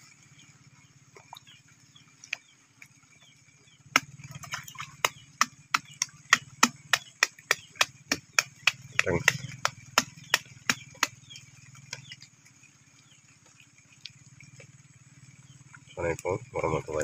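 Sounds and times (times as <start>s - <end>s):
sharp evenly spaced taps: 3.9s - 12.2s.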